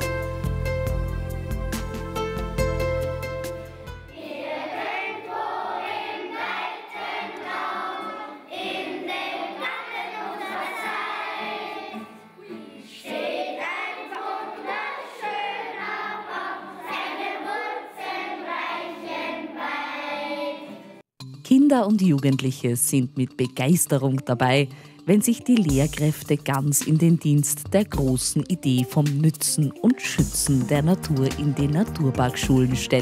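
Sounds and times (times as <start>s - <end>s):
children's choir singing: 4.1s - 21.0s.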